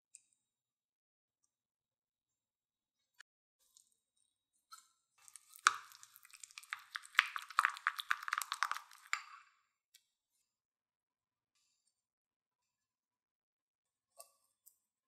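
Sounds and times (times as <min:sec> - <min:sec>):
spoon mixing thick paste: 0:05.2 - 0:09.4.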